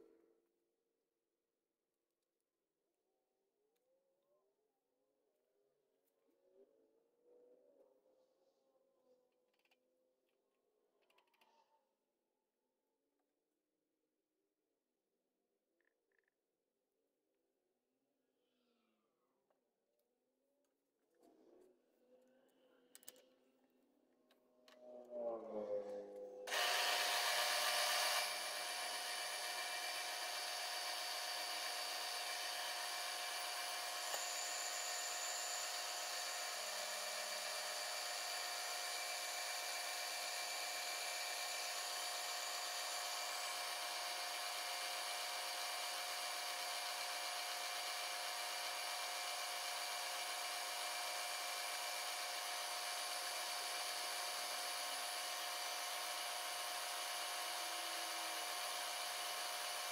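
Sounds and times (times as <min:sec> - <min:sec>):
milling machine cutting metal: 0:26.5 - 0:59.9.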